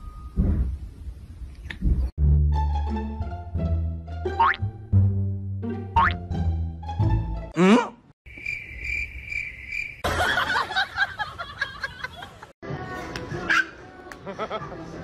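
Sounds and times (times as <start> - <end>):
playful music: 2.2 - 7.6
crickets chirping: 8.3 - 10.1.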